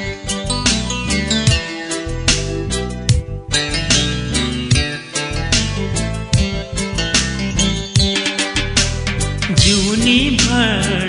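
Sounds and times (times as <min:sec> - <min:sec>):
plucked string music: 0:00.0 - 0:11.0
person singing: 0:09.5 - 0:11.0.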